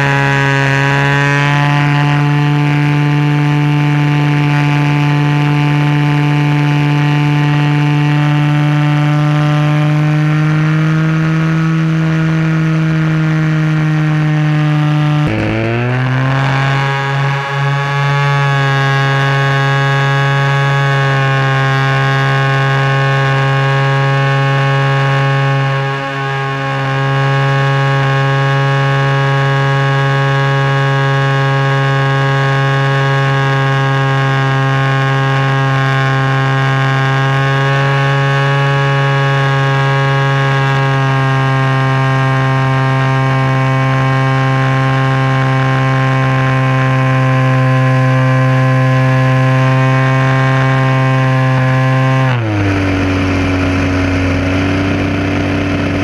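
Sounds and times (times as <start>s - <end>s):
model plane engine running: 0.0s - 56.0s.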